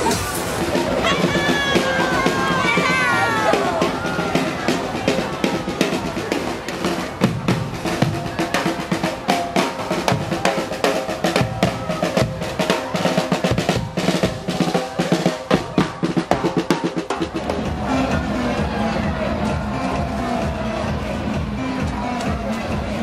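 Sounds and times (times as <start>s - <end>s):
snare and bass drum beating: 0.0s - 17.9s
marching brass band playing: 0.4s - 21.6s.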